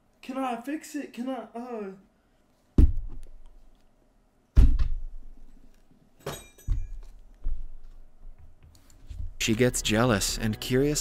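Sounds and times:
dull thumps and knocks: 2.8s - 3.3s
metallic clink: 6.2s - 7.1s.

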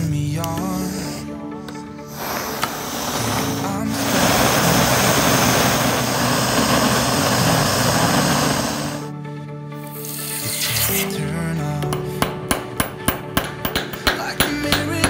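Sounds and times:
background music: 0.0s - 15.0s
soldering torch hissing: 2.0s - 9.1s, 9.9s - 11.1s
hot metal quenched in water: 2.1s - 9.1s, 11.9s - 15.0s.

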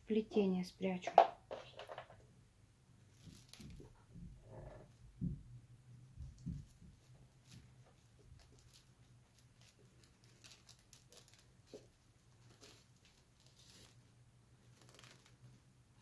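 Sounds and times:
paper rustling and crackling: 3.1s - 4.0s, 6.2s - 15.6s
soft bumps: 3.6s - 7.9s.

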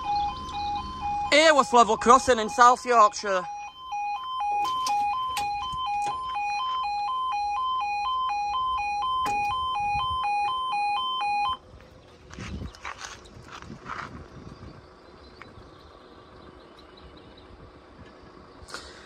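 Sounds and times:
level crossing alarm warbling: 0.0s - 11.6s.

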